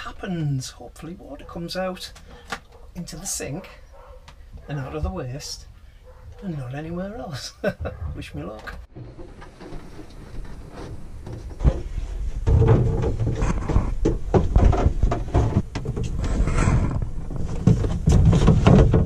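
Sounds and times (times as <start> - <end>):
plastic pipes knocking and clicking: 11.2 - 16.2, 17.4 - 19.0.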